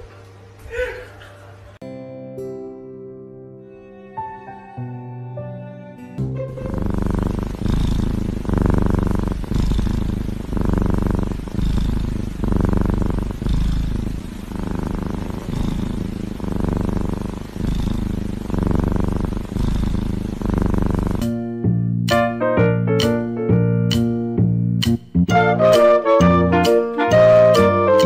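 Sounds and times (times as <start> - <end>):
kitten purring: 6.5 - 21.4.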